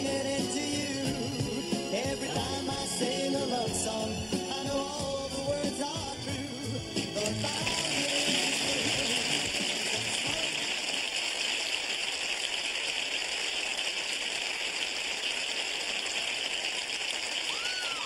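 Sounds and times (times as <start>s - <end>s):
band playing: 0.0s - 10.8s
person singing: 0.0s - 10.9s
studio audience applauding: 6.9s - 18.0s.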